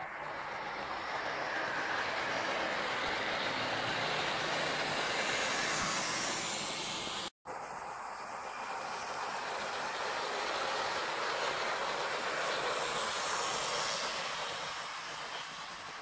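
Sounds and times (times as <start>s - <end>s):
model train whirring and rattling: 0.0s - 16.0s.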